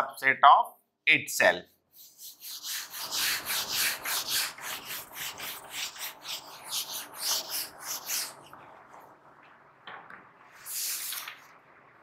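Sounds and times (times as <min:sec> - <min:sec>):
eraser wiping a whiteboard: 0:01.9 - 0:08.5, 0:10.6 - 0:11.3.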